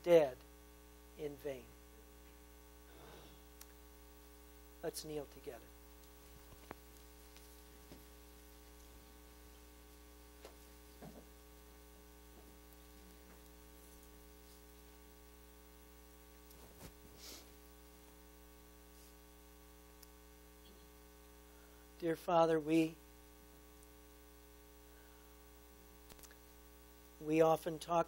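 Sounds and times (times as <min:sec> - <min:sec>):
electrical hum: 0:00.0 - 0:28.0
faint rustles and knocks: 0:06.2 - 0:11.4.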